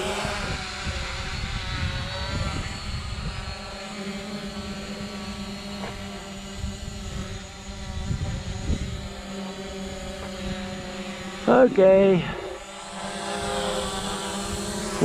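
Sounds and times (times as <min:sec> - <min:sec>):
wind rumbling on microphone: 0:00.0 - 0:03.8, 0:04.6 - 0:12.6
drone propellers whining: 0:00.0 - 0:15.0.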